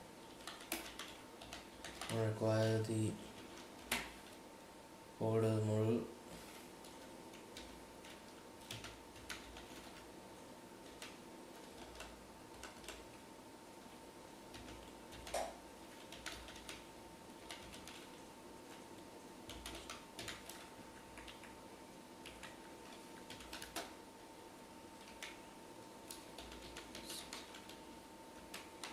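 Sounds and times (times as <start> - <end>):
computer keyboard typing: 0.3 - 2.8, 3.4 - 4.4, 6.8 - 10.1, 10.8 - 13.2, 14.5 - 18.8, 19.4 - 21.6, 22.2 - 24.0, 25.0 - 25.5, 26.1 - 28.9.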